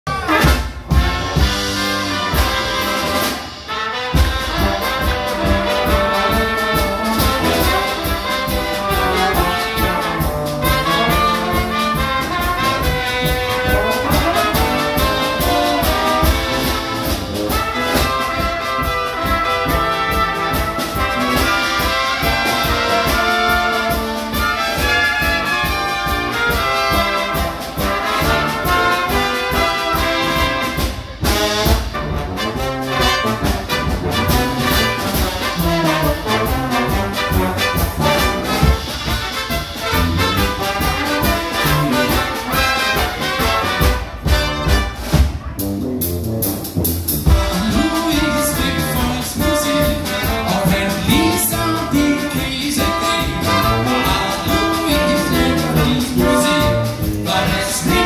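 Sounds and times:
brass band playing: 0:00.0 - 0:58.0
drum kit beat: 0:00.1 - 0:58.0.

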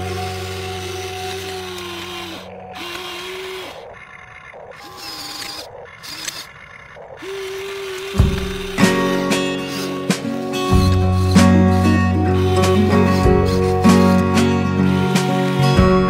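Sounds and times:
acoustic guitar music: 0:00.0 - 0:02.8, 0:08.2 - 0:16.0
small electric motors whining: 0:00.0 - 0:16.0.

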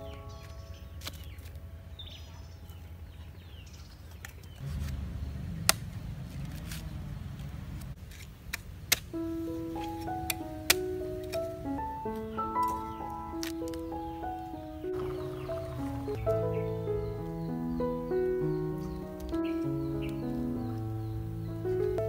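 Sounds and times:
machete chopping coconut: 0:05.7 - 0:06.9, 0:08.1 - 0:09.1
faint bird chirps: 0:12.1 - 0:22.0.

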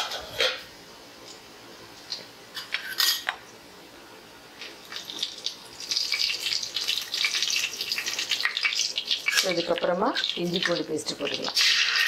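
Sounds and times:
spices frying in oil: 0:04.5 - 0:12.0.

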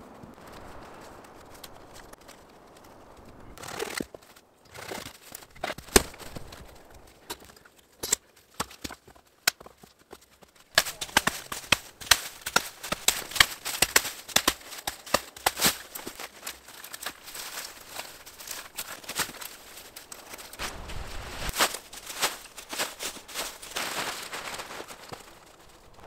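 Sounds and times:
hatchet chopping and breaking boughs: 0:03.6 - 0:09.8, 0:10.7 - 0:19.6
wooden poles knocking: 0:08.6 - 0:16.4.

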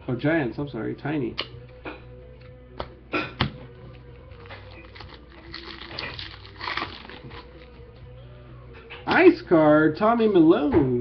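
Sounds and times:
cards rustling: 0:03.9 - 0:07.8.

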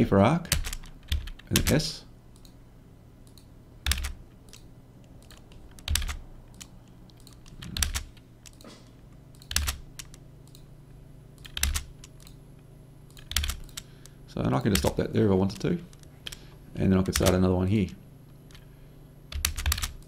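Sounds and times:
keyboard keystrokes: 0:03.3 - 0:08.6, 0:09.4 - 0:10.6, 0:11.4 - 0:12.4, 0:13.1 - 0:13.9, 0:17.1 - 0:17.4, 0:19.4 - 0:20.0.

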